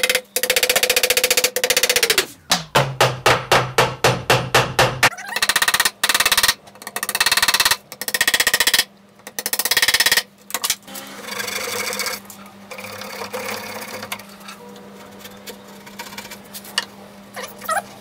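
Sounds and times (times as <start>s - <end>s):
wooden mallet knocking: 2.5s - 5.1s.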